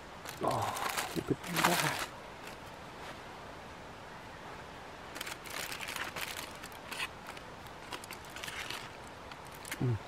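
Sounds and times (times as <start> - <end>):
background hiss: 0.0 - 10.0
utensil scraping foil: 5.2 - 9.8.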